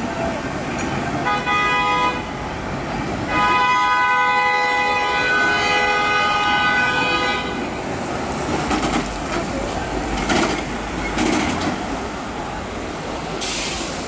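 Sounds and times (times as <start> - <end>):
tram wheels squealing: 6.9 - 12.1.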